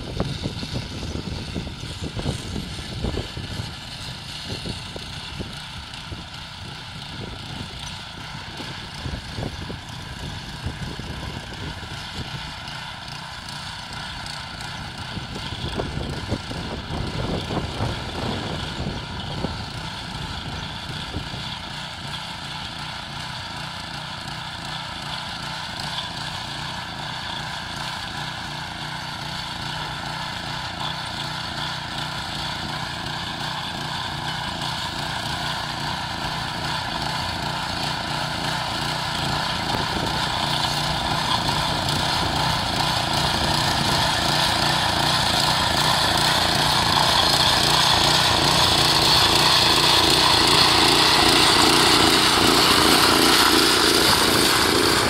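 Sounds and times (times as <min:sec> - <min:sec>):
tiller engine running: 0:00.0 - 0:55.0
tines churning soil: 0:00.0 - 0:55.0.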